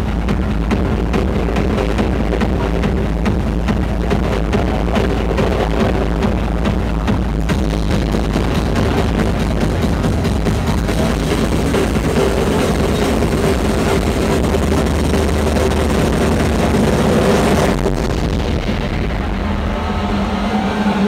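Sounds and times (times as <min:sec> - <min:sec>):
arena crowd roar: 0:18.4 - 0:21.0.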